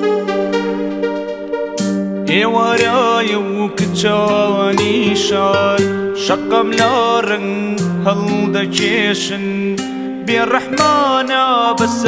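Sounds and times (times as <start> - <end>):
song with sliding melody: 0.0 - 12.0
percussion hits: 4.8 - 6.9.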